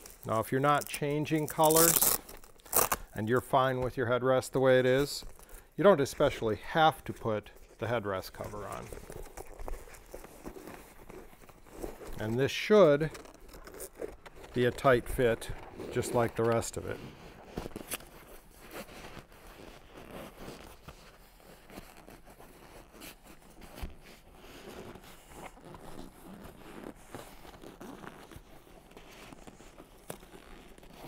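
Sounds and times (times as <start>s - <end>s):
seat cover rustling: 8.2s - 31.0s.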